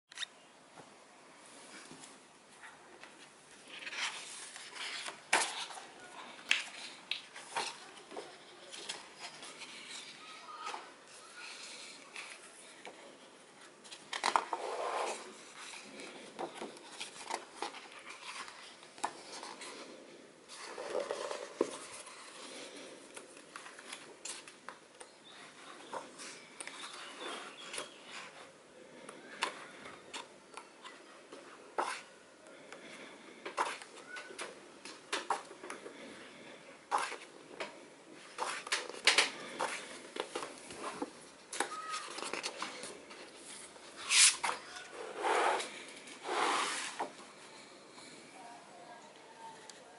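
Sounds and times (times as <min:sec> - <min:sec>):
pages turning: 0:03.0 - 0:12.5, 0:13.6 - 0:19.9, 0:36.9 - 0:47.7.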